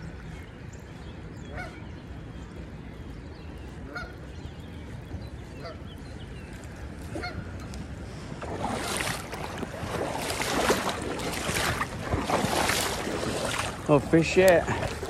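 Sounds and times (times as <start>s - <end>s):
faint bird calls: 1.4s - 1.9s
creek water rushing: 8.1s - 15.0s.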